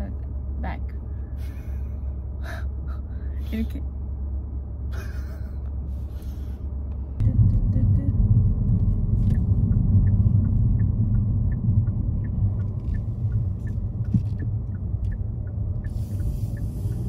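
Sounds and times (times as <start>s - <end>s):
car rumble from inside cabin: 0.0s - 17.0s
light regular ticking: 9.0s - 17.0s.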